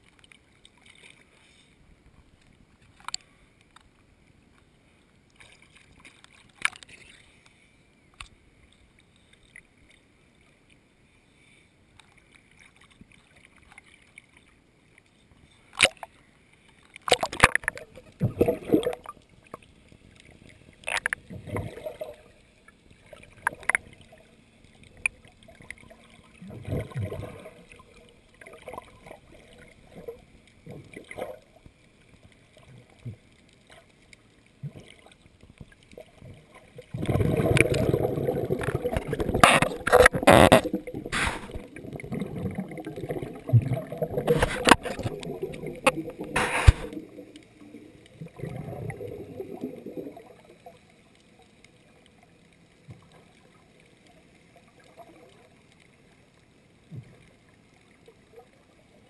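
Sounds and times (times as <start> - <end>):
rushing water: 16.8 - 50.8
water bubbling underwater: 17.0 - 51.2
swimmer splashing: 37.0 - 47.6.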